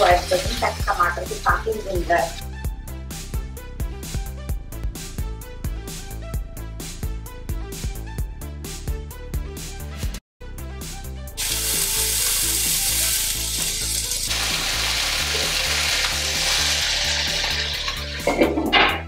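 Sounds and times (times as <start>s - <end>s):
masala sizzling in a frying pan: 0.0s - 2.4s, 11.4s - 18.2s.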